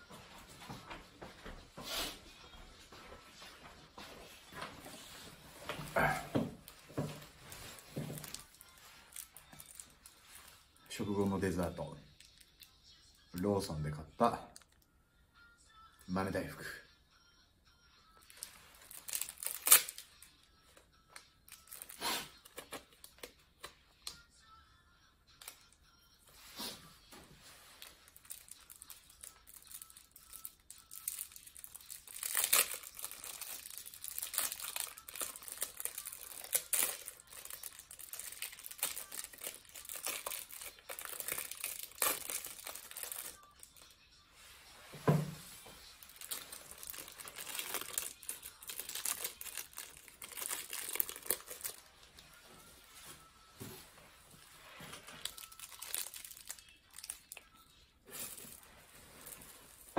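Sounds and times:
plastic wrapper crinkling and tearing: 6.0s - 11.0s, 18.2s - 20.3s, 21.5s - 23.7s, 27.6s - 43.9s, 46.0s - 52.4s, 54.6s - 59.9s.

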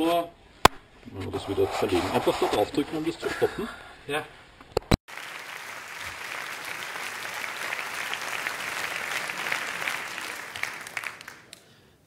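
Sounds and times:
hands clapping: 5.1s - 11.7s.

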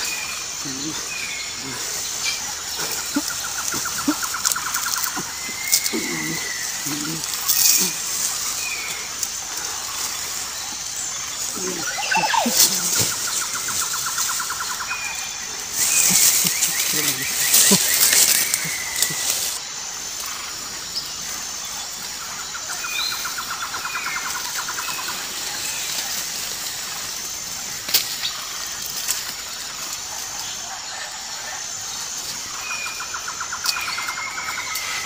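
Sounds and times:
high insect hiss: 0.0s - 35.0s
birds whistling: 11.2s - 19.6s.

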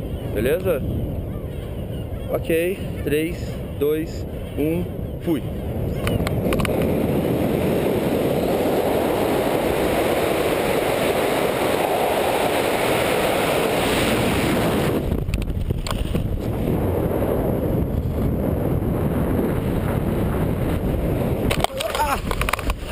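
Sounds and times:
wind rushing over microphone: 0.0s - 22.9s
parachute canopy snaps: 21.5s - 22.9s.

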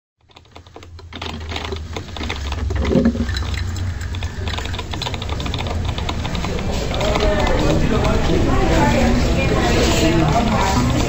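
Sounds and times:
keyboard typing clicks: 0.2s - 8.4s
low steady hum: 0.3s - 11.0s.

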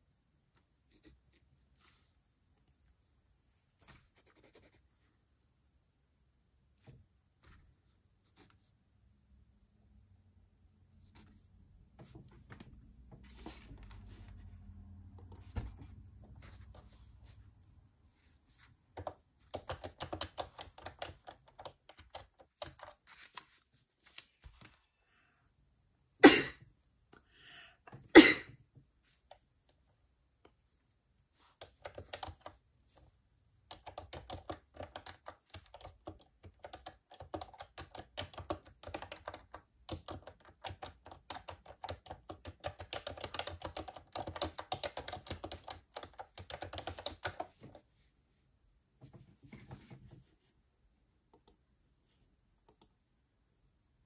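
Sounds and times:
typing on computer keyboard: 18.9s - 23.4s, 31.6s - 32.6s, 33.6s - 47.8s.

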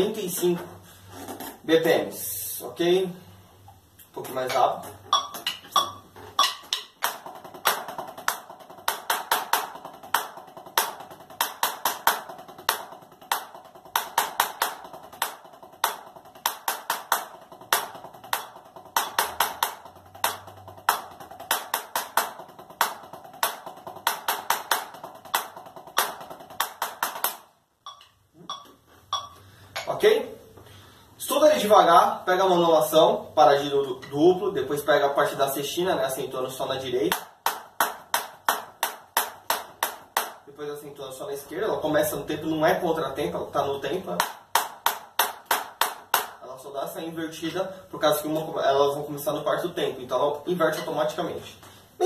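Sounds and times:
drumsticks on practice pad: 4.0s - 30.1s.

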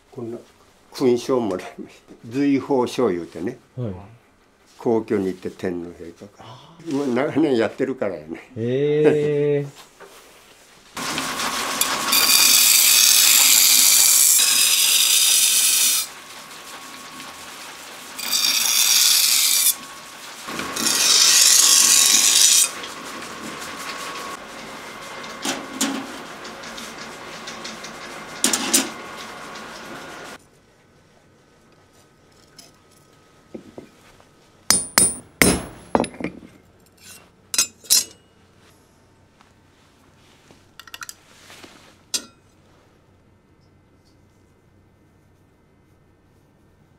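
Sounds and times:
grinding wheel hum: 11.0s - 30.4s
sharp taps and clinks: 34.7s - 36.4s
knife grinding on grindstone: 36.9s - 38.2s.

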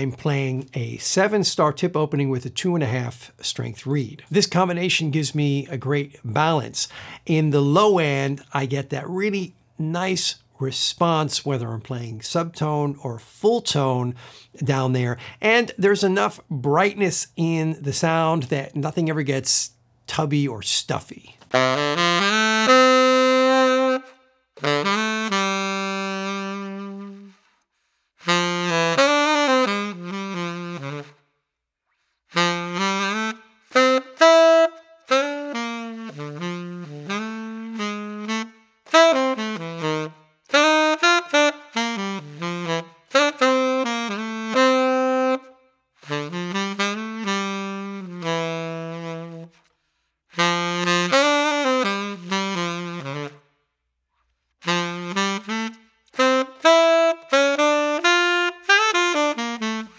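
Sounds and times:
solo tenor saxophone melody: 21.5s - 53.8s, 54.5s - 59.9s.

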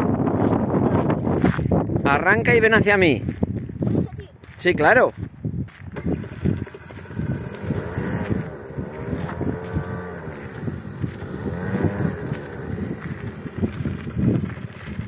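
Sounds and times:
motor scooter engine: 5.8s - 15.0s.

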